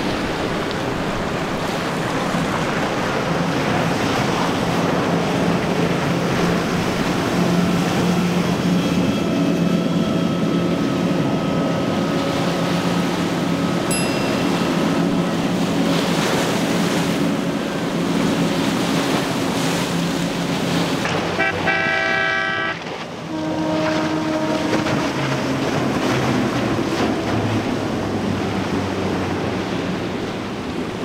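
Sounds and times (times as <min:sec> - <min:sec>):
boat engine drone: 0:00.0 - 0:31.0
hull spray and wave wash: 0:00.0 - 0:31.0
boat horn: 0:21.0 - 0:28.5.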